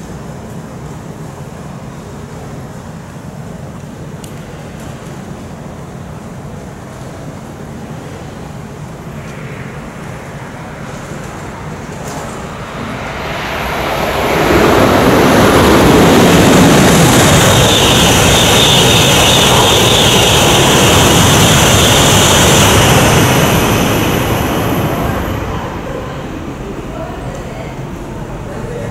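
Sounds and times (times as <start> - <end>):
high-speed train rushing roar: 0.0 - 28.9
high steady whine: 8.0 - 28.9.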